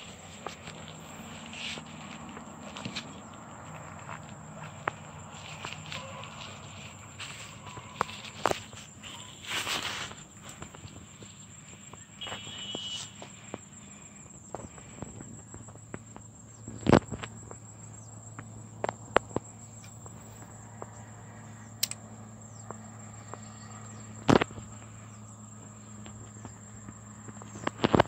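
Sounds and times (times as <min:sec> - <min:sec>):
insects trilling: 0:00.0 - 0:28.0
light clicks: 0:21.8 - 0:22.0.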